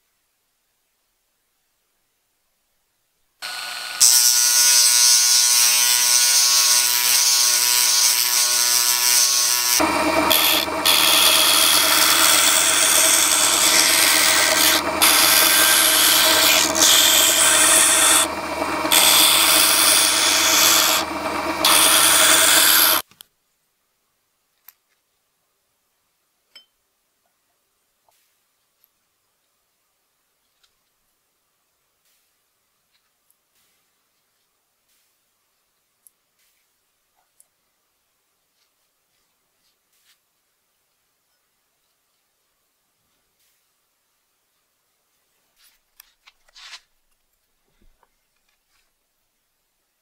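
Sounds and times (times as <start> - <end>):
power sander sanding: 3.4 - 23.0
rotary tool whining: 3.4 - 23.0.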